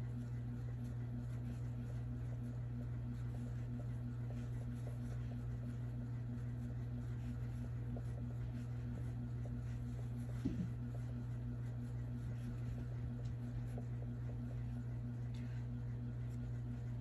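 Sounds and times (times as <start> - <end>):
steady low hum: 0.0 - 17.0.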